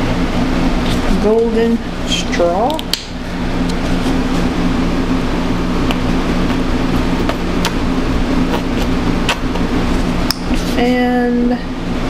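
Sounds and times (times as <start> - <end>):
mechanical hum with rushing air: 0.0 - 12.0.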